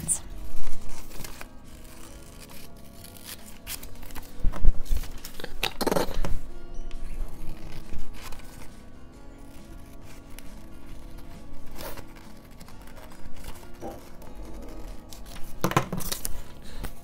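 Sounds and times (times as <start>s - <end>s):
scissors snipping paper: 0.0s - 6.3s, 7.2s - 8.8s, 9.4s - 17.0s
background music: 0.0s - 17.0s
paper rustling and crinkling: 0.1s - 6.4s, 7.1s - 17.0s.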